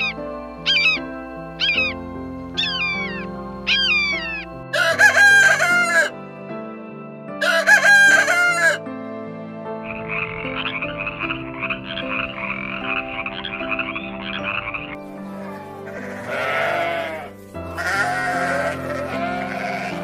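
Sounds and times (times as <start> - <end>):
frog croaking trill: 0.0 - 6.1, 9.9 - 19.9
soft background music: 0.0 - 20.0
rooster crowing: 3.7 - 6.2, 7.4 - 8.8.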